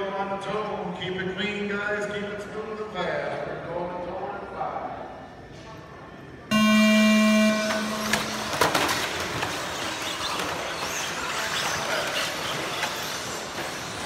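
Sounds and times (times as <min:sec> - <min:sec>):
loud steady tone: 0:06.5 - 0:09.1
rc cars whirring and clattering: 0:08.1 - 0:14.0.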